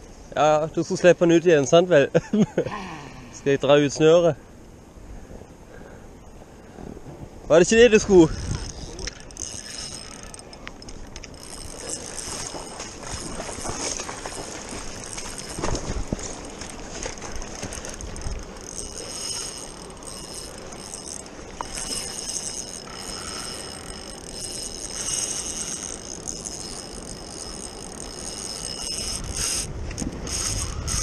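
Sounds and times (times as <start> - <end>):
fishing reel whirring and clicking: 8.0 - 31.0.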